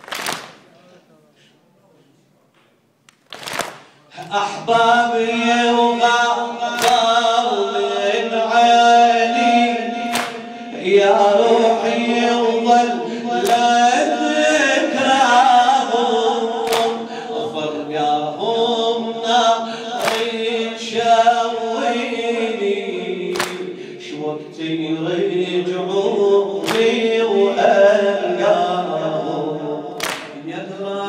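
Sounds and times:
amplified man chanting: 4.0s - 31.0s
chest-beating slaps: 6.8s - 7.1s, 10.1s - 10.5s, 13.4s - 13.7s, 16.7s - 17.1s, 20.0s - 20.4s, 23.4s - 23.7s, 26.6s - 27.0s, 30.0s - 30.4s.

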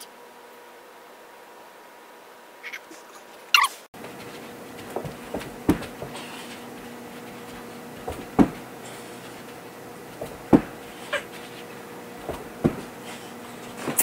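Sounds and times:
faint steady hum: 0.0s - 14.0s
feet thudding on floor: 4.0s - 14.0s.

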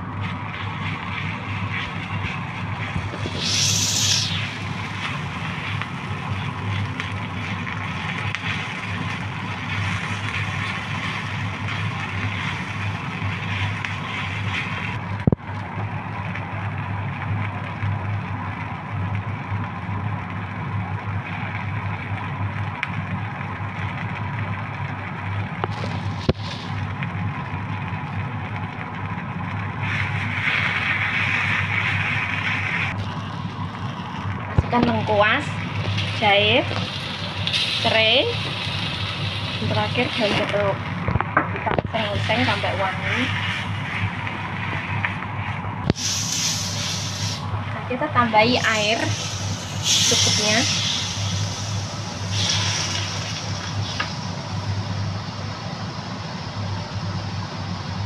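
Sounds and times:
food sizzling in oil: 0.0s - 15.1s, 25.2s - 55.2s
low hum: 0.0s - 16.9s.

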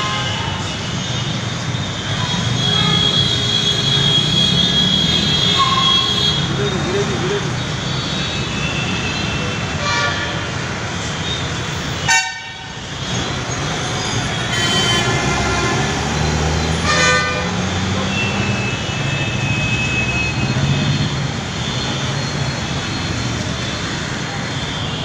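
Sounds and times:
vehicle horns honking: 0.0s - 10.5s, 11.2s - 13.2s, 14.1s - 16.1s, 16.7s - 22.0s
traffic engine drone: 0.0s - 25.0s.

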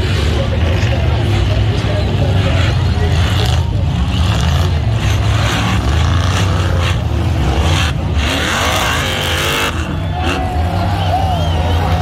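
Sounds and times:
race car engines rumbling: 0.0s - 12.0s.

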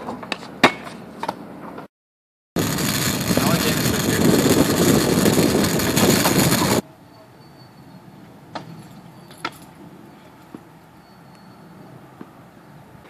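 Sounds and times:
wind on microphone: 2.6s - 6.8s
kick scooters rolling on asphalt: 2.6s - 6.9s.

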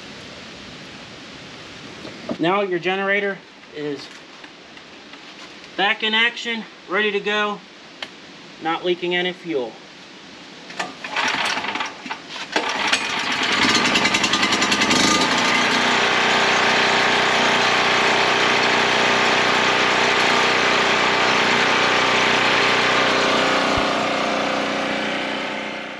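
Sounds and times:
generator engine cranking: 10.7s - 25.9s
generator engine running: 11.0s - 25.9s.

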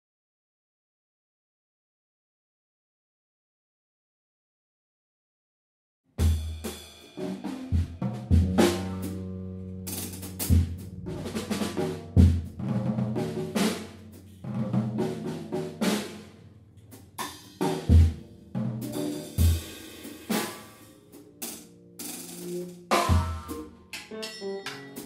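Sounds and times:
heavy drum hits: 6.2s - 9.3s, 9.9s - 16.4s, 17.0s - 23.7s
experimental instrumental trio music: 6.2s - 25.0s
held low notes: 7.4s - 24.0s.

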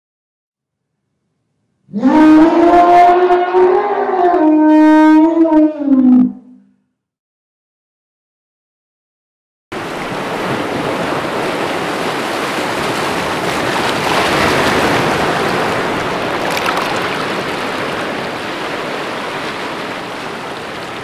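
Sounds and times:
waterfall splashing onto rock: 16.3s - 17.7s.

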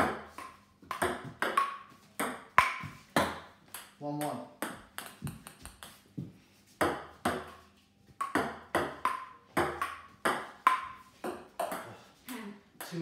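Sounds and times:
ball clicking on paddle and table: 0.0s - 4.0s, 8.2s - 11.9s
table tennis ball bouncing: 0.0s - 12.0s.

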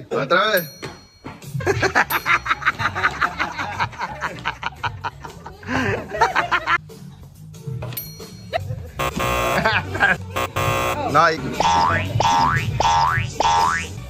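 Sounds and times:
music: 0.0s - 14.0s
rapid laughter: 1.6s - 6.8s, 8.6s - 10.4s.

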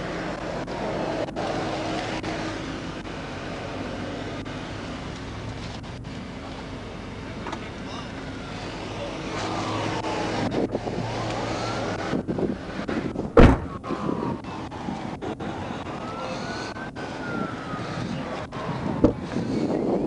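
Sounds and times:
highway traffic passing: 0.0s - 20.0s
police siren wailing: 8.0s - 12.9s, 13.6s - 20.0s
sharp thud: 13.4s - 13.8s.

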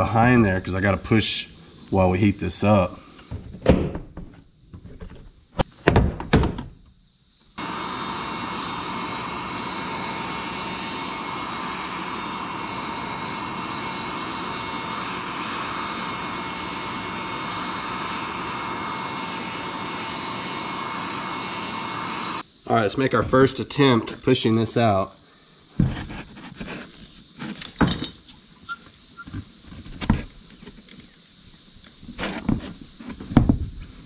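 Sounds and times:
plastic trim knocks and clunks: 3.3s - 6.7s, 32.4s - 33.7s
heat gun blowing: 7.6s - 22.5s.

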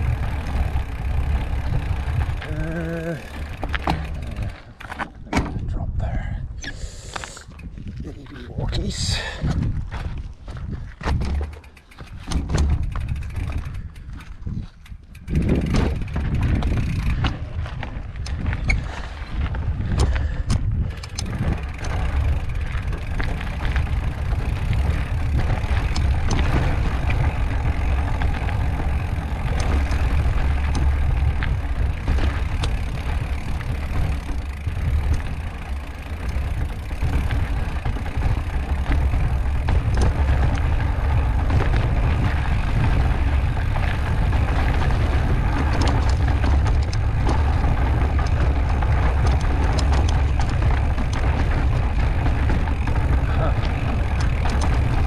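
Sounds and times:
bike tyres rumbling on rock: 0.0s - 6.2s, 6.9s - 55.0s
wind buffeting microphone: 0.0s - 6.6s, 7.3s - 55.0s
bike knocking and rattling: 0.0s - 55.0s
steady rushing noise: 15.1s - 55.0s.

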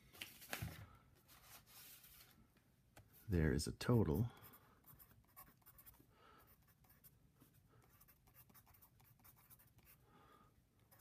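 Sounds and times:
pencil scratching on paper: 4.2s - 10.0s.

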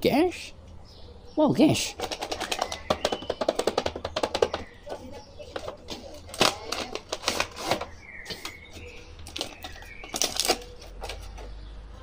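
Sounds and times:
cardboard packaging rustling: 5.8s - 11.6s
plastic bag crinkling: 9.2s - 11.4s.

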